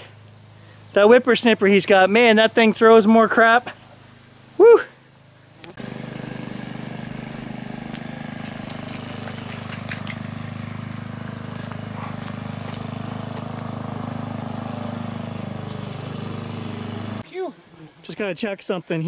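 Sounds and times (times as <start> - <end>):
lawnmower engine running: 5.2 - 17.2.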